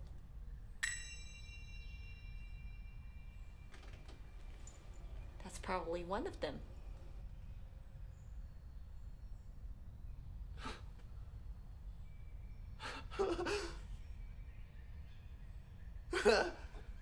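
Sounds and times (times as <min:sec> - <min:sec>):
low room hum: 0:00.0 - 0:17.0
man breathy laugh: 0:12.8 - 0:13.9.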